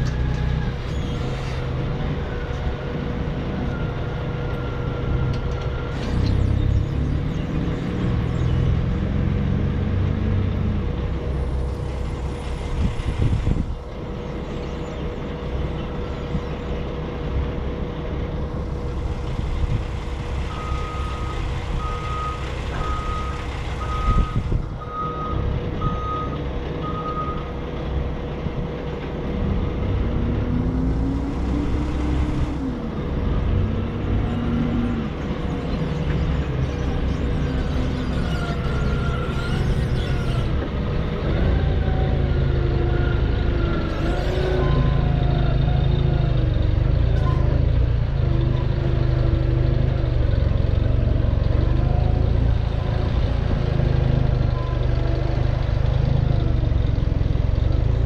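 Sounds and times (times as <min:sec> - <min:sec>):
heavy vehicle engine revving: 0:00.0 - 0:58.0
reversing alarm beeping: 0:20.5 - 0:27.5.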